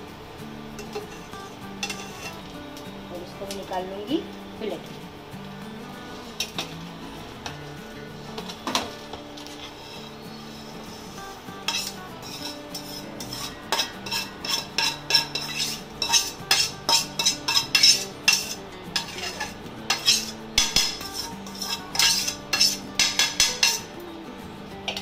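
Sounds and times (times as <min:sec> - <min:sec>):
steel spoon scraping a pan: 0:00.8 - 0:02.5, 0:06.2 - 0:06.7, 0:08.3 - 0:23.9.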